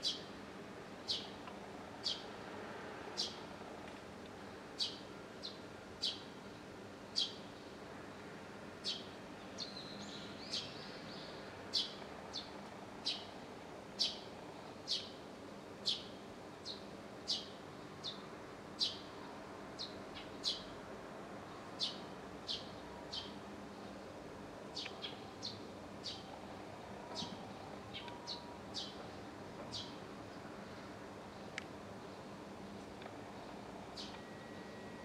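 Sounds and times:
faint background noise: 0.0s - 35.0s
sparrow chirping: 1.1s - 1.3s, 2.0s - 2.3s, 4.8s - 6.2s, 7.2s - 7.4s, 8.8s - 13.3s, 14.0s - 14.3s, 14.9s - 15.2s, 15.8s - 18.2s, 18.8s - 19.1s, 19.8s - 20.7s, 21.8s - 23.4s, 24.7s - 26.4s, 27.1s - 27.3s, 27.9s - 29.0s, 29.7s - 30.0s, 34.0s - 34.7s.

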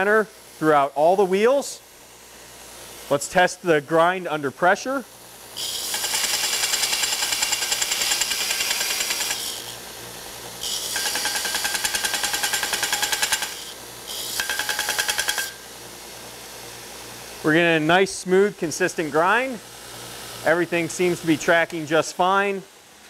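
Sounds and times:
belt grinder running: 5.4s - 15.7s
belt grinder grinding steel: 5.6s - 9.9s, 10.6s - 15.6s.

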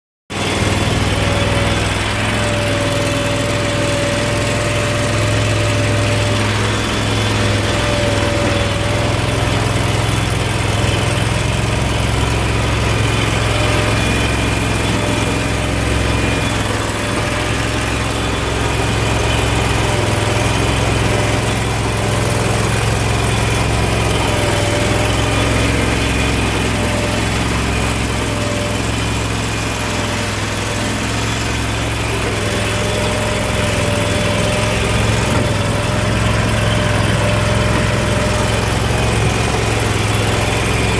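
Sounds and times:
boat engine humming with whine: 0.3s - 40.9s.

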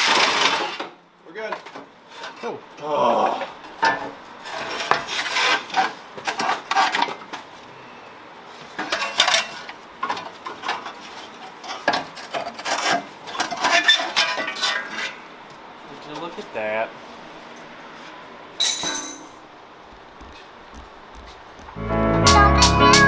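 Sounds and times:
metal tool clinks: 18.6s - 19.4s.

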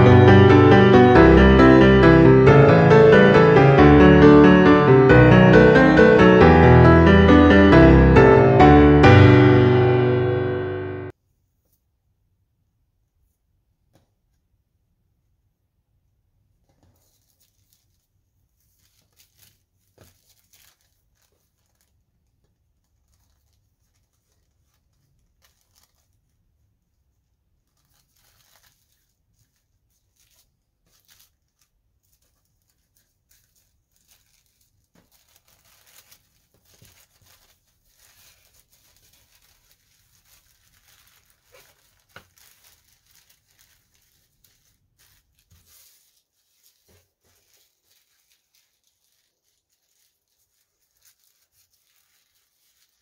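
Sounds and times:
tissue paper crinkling: 16.7s - 53.0s.

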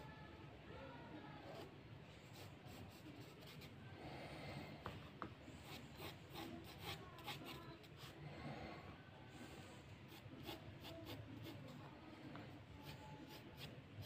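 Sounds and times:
pencil scratching on paper: 1.5s - 3.8s, 5.5s - 8.2s, 10.1s - 14.0s.

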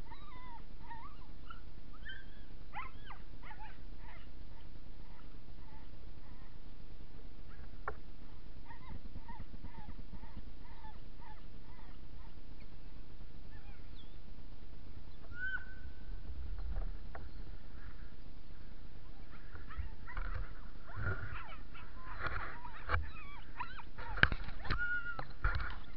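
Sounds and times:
dogs whining and yipping: 0.0s - 6.5s, 8.3s - 12.4s, 13.5s - 14.2s, 15.2s - 16.0s, 19.1s - 25.9s.

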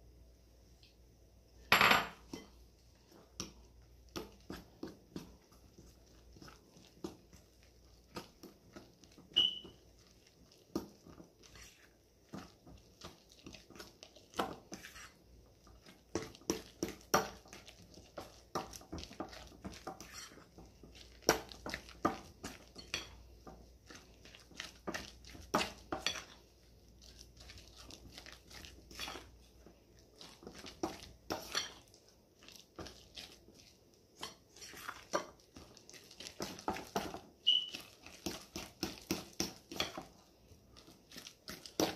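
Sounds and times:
wet dough being worked: 0.0s - 41.9s
short high squeak: 37.4s - 37.7s.

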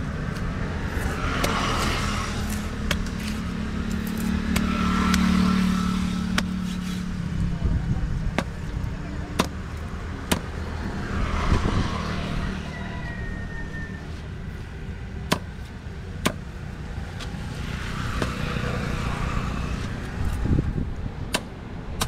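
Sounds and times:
vehicles passing: 0.0s - 22.0s.

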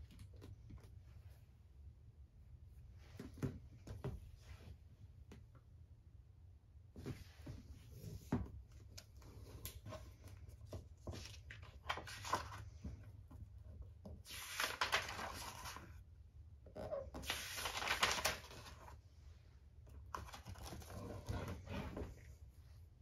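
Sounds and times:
pages rustling: 9.3s - 13.0s, 14.2s - 16.0s, 17.1s - 19.0s, 20.1s - 22.2s.

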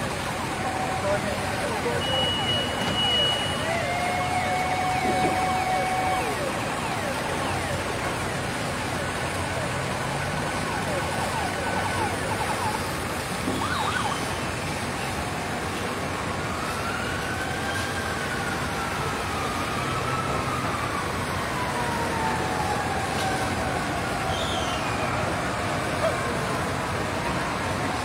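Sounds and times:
emergency vehicle siren wailing: 0.0s - 28.0s.

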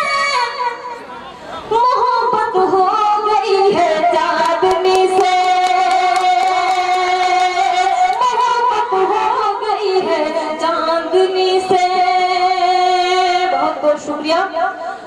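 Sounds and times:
woman singing into microphone: 0.0s - 1.0s, 1.7s - 15.0s.

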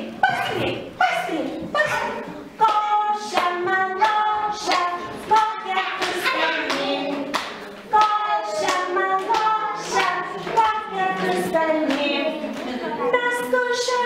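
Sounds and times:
women singing children's song: 0.0s - 14.0s
hand claps: 2.6s - 10.8s.

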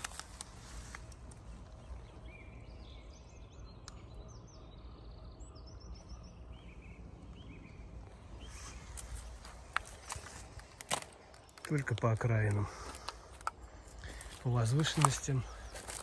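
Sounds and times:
low background noise: 0.0s - 16.0s
songbirds chirping: 0.0s - 16.0s.

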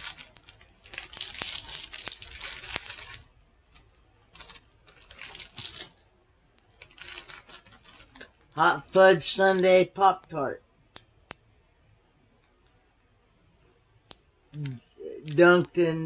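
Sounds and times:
foil pouch crinkling: 0.0s - 9.6s.

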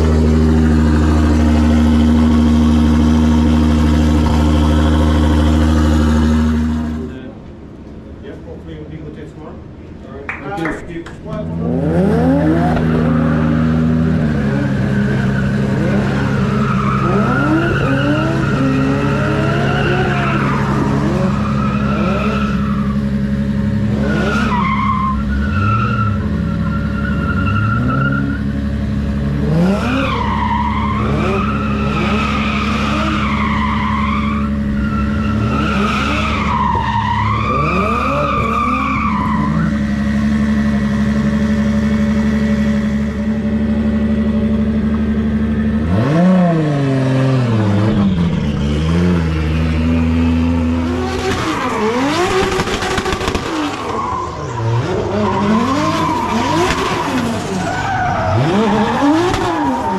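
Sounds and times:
engine revving: 0.0s - 7.3s, 11.4s - 24.6s, 25.3s - 36.7s, 37.3s - 59.9s
tyre squeal: 12.6s - 23.2s, 24.0s - 28.6s, 29.8s - 43.3s, 53.7s - 59.9s.

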